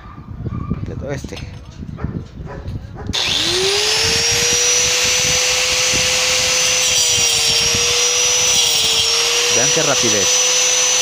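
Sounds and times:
angle grinder motor whine: 0:03.1 - 0:11.0.

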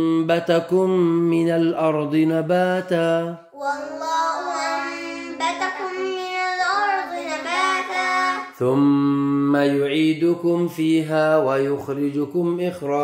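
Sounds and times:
boy chanting melodic recitation: 0:02.2 - 0:09.9.

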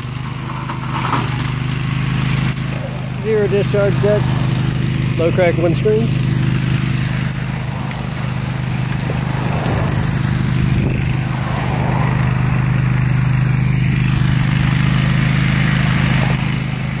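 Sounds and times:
mower engine running steadily: 0:00.0 - 0:17.0.

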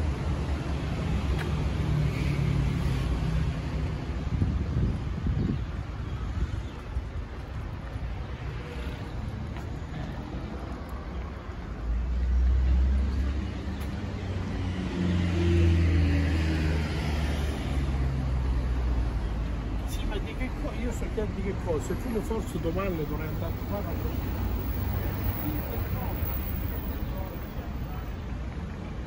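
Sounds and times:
street traffic: 0:00.0 - 0:29.0
vehicle engine humming close by: 0:21.0 - 0:28.2.

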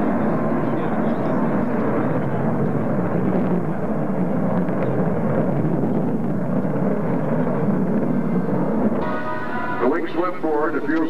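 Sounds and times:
jet bomber flying past: 0:00.0 - 0:11.0.

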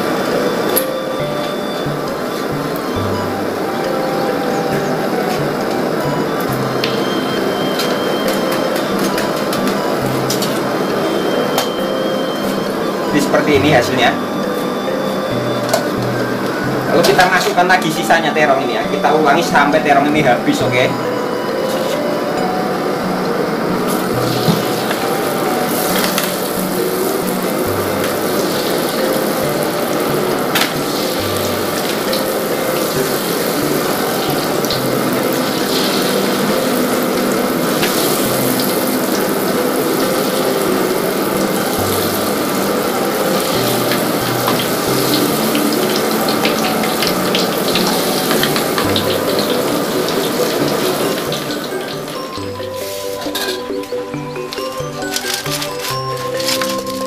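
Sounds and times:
food deep-frying in hot oil: 0:00.0 - 0:19.6, 0:20.4 - 0:57.0
background music: 0:00.0 - 0:57.0.

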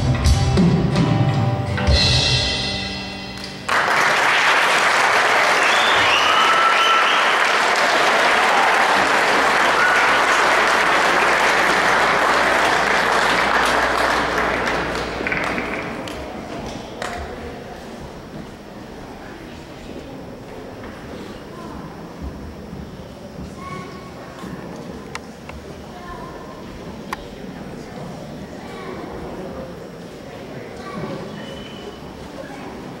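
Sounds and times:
audience applause: 0:03.6 - 0:17.2
whistles from audience: 0:05.4 - 0:07.7, 0:31.4 - 0:32.1.

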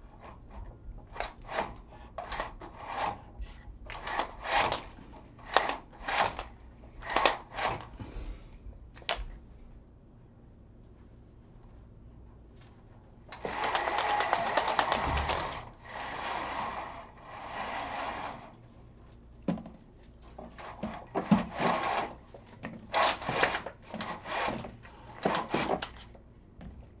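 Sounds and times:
venetian blind rattling: 0:03.9 - 0:07.9, 0:13.3 - 0:18.6, 0:20.4 - 0:26.1.

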